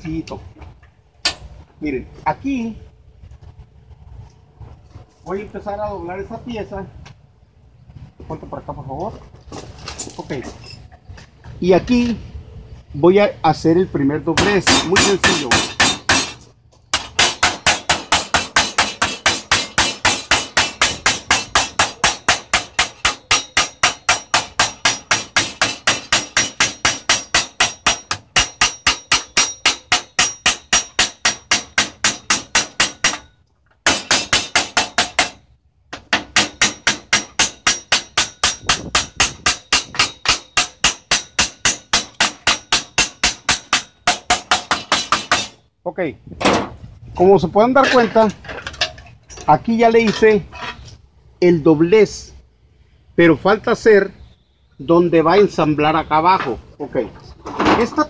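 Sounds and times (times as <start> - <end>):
hammer blows on sheet metal: 36.0 - 45.6.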